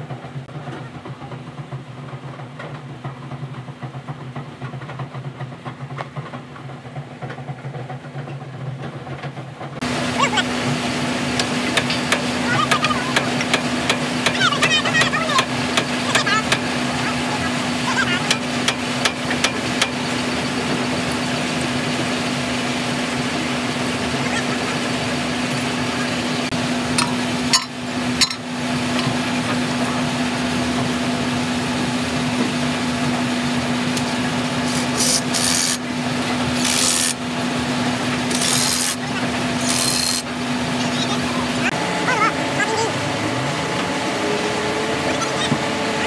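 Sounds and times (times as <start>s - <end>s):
tools scraping on metal: 34.6s - 35.8s, 36.6s - 37.2s, 38.2s - 39.0s, 39.6s - 40.3s.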